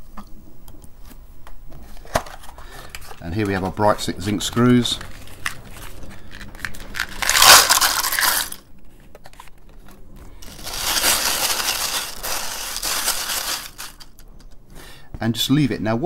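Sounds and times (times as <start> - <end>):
screws rattling and scraping: 6.0 - 8.6, 10.4 - 14.2
screws poured into plastic jar: 6.9 - 8.6, 10.4 - 14.2.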